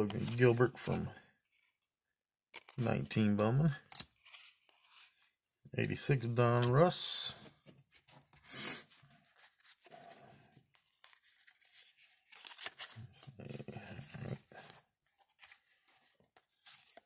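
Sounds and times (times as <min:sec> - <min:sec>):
cardboard cards sliding and scraping: 0:04.0 - 0:05.3, 0:07.8 - 0:17.0.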